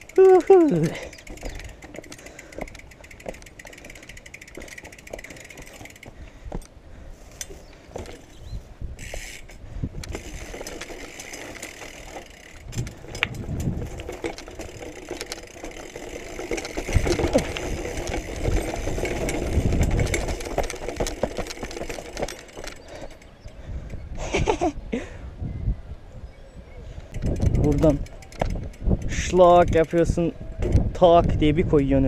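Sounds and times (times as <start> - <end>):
bike rattling: 0.0 - 25.1, 27.0 - 32.0
tyres crunching on stones: 7.3 - 23.3.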